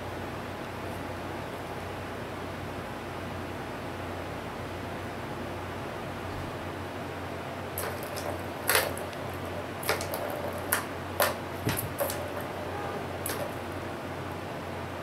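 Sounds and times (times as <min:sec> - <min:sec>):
plastic toy balls clicking: 0:07.8 - 0:13.8.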